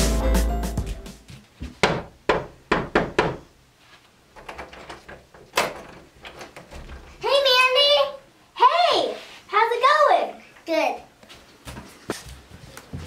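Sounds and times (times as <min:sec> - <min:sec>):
background music: 0:00.0 - 0:01.3.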